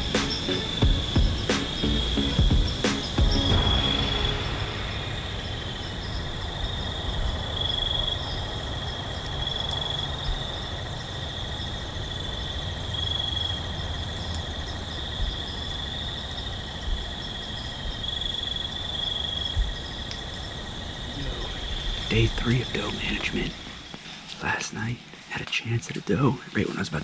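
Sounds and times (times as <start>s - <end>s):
crickets trilling: 0.0s - 27.0s
low rumble: 3.5s - 7.6s.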